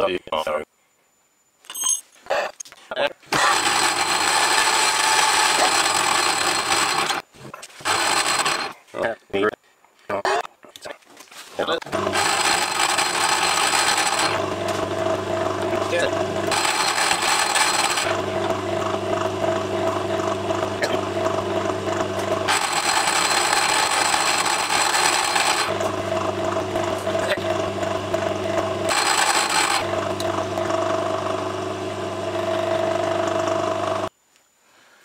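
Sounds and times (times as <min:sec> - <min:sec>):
lathe motor hum: 0:03.5 - 0:07.2, 0:07.9 - 0:08.7, 0:11.9 - 0:34.1
parting tool cutting metal: 0:15.6 - 0:18.2, 0:22.2 - 0:25.9, 0:28.8 - 0:30.4.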